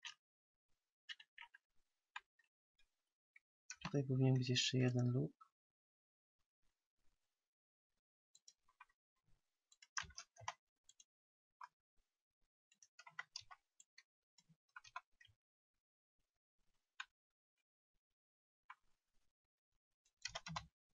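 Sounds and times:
computer mouse clicks: 20.2s - 20.7s.

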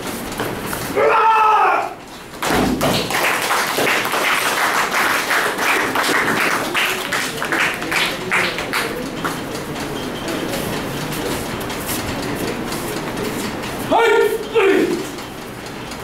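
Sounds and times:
audience clapping: 2.4s - 9.5s
crowd voices: 5.4s - 15.3s.

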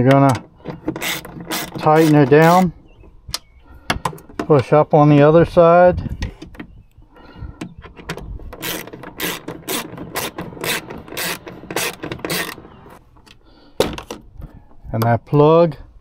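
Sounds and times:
ratchet wrench clicking: 8.6s - 12.6s.

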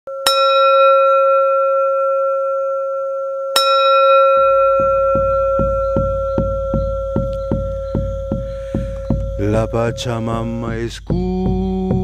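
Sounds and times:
bell ringing: 0.1s - 10.2s
drum beat of low thumps: 4.4s - 12.0s.

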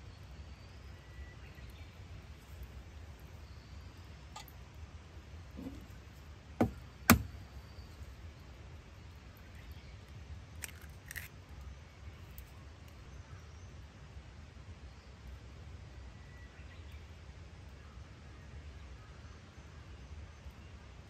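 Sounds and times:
egg shell clicking open: 10.6s - 11.3s.

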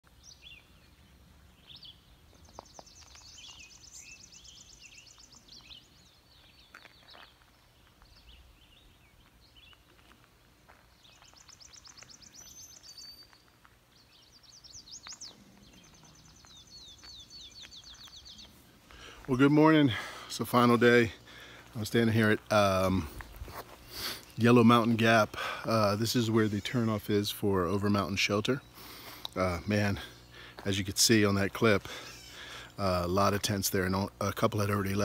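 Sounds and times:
songbird trills: 0.0s - 23.2s, 23.8s - 35.0s
bird chirps: 0.1s - 10.1s, 11.0s - 19.2s.

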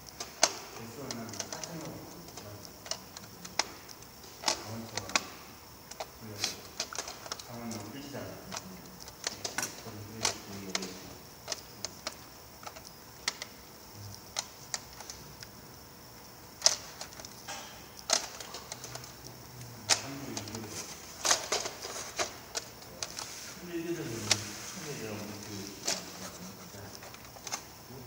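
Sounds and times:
plastic trays clicking and clacking: 0.2s - 3.8s, 4.4s - 13.5s, 19.9s - 23.2s.

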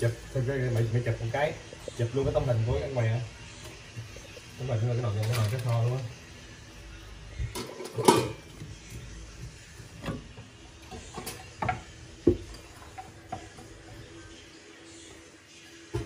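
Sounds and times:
kitchenware knocking and clinking: 7.5s - 8.4s, 11.0s - 13.7s.

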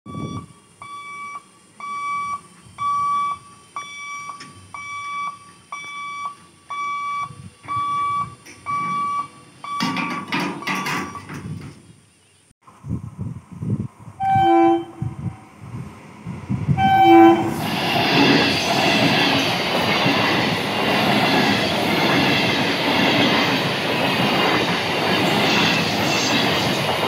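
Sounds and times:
level crossing warning beeps: 0.1s - 11.4s.

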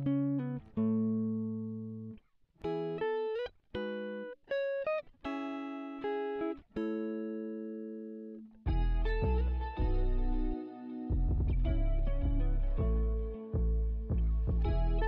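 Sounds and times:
guitar chords ringing: 0.0s - 15.0s.

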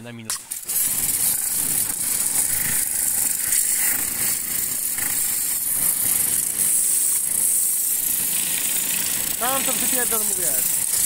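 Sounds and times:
pressure washer spraying metal: 0.4s - 11.0s.

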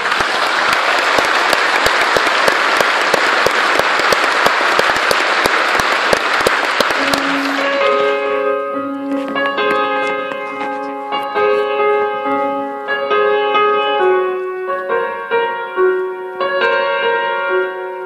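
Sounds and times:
audience applauding: 0.0s - 8.2s
piano notes: 2.7s - 18.0s.

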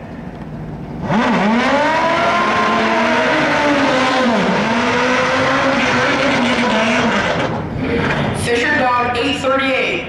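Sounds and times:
motorcycle engine at full throttle: 0.6s - 8.4s.

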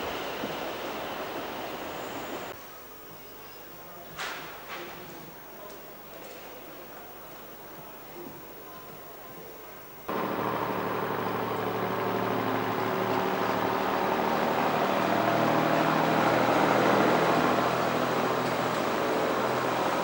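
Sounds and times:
diesel railcar engine drone: 10.1s - 20.0s
train wheels on rails: 10.1s - 20.0s.

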